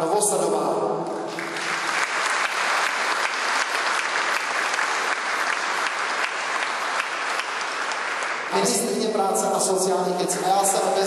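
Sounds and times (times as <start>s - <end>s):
audience applauding: 1.3s - 9.0s.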